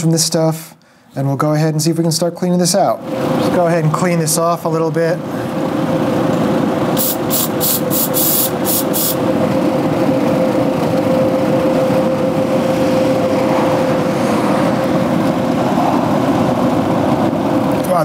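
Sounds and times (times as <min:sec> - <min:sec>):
fan whirring: 0:00.0 - 0:18.0
aerosol spray hisses: 0:07.0 - 0:09.2.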